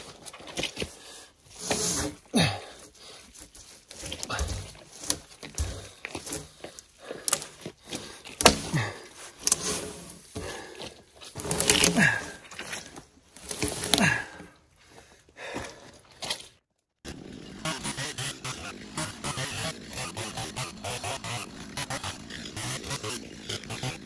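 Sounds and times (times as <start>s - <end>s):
chainsaw cutting log: 4.0s - 12.5s, 17.0s - 24.0s.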